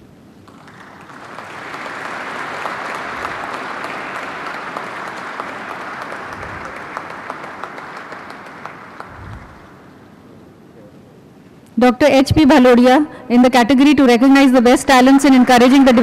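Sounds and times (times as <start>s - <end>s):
audience applause: 0.4s - 10.2s, 14.9s - 16.0s.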